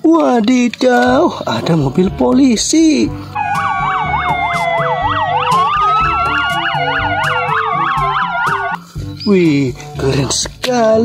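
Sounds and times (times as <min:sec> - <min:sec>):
police siren wail: 0:03.3 - 0:08.8
police siren yelp: 0:03.3 - 0:08.8.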